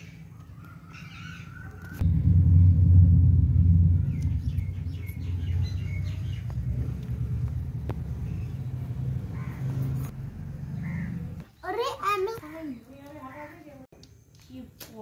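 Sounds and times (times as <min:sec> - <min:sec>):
birds chirping: 0:00.0 - 0:02.0, 0:03.6 - 0:14.8
low outdoor rumble: 0:00.2 - 0:11.5.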